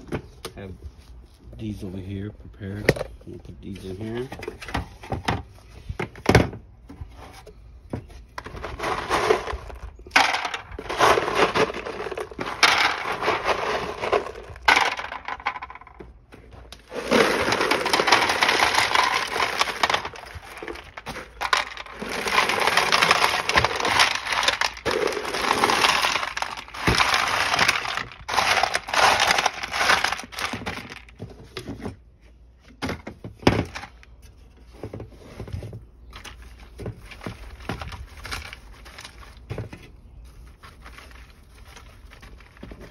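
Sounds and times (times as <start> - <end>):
rocks clattering into plastic tray: 8.0 - 32.0, 32.7 - 34.1, 34.8 - 40.0, 40.8 - 42.9.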